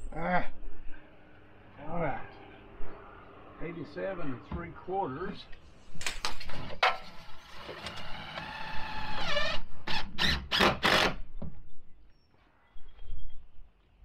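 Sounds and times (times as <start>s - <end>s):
power tool whine: 7.0s - 11.2s.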